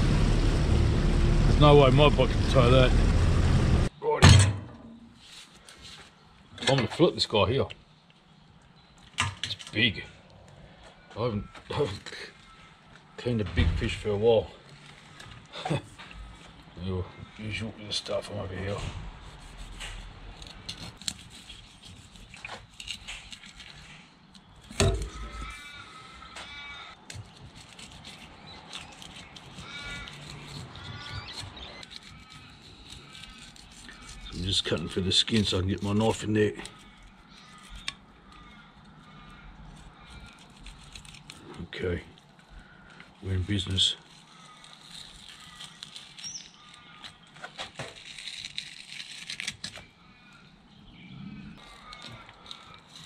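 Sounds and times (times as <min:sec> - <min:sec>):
bird wailing caws: 0:10.6 - 0:13.2, 0:15.5 - 0:18.8, 0:24.8 - 0:27.0, 0:28.7 - 0:41.5, 0:42.4 - 0:47.5, 0:49.8 - 0:53.0
crisp clicks and scraping: 0:14.6 - 0:16.6, 0:18.7 - 0:25.7, 0:26.4 - 0:43.1, 0:44.0 - 0:49.9, 0:51.6 - 0:53.0.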